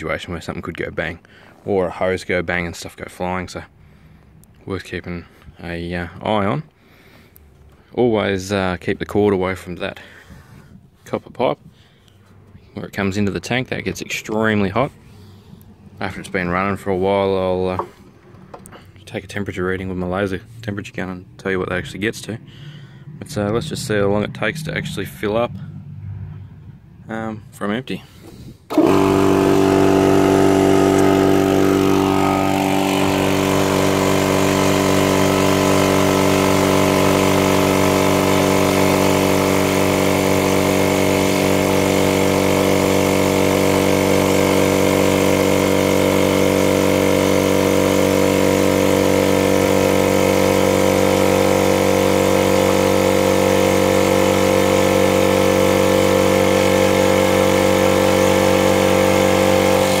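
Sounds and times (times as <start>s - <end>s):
air compressor running: 9.8s - 19.1s, 28.0s - 60.0s.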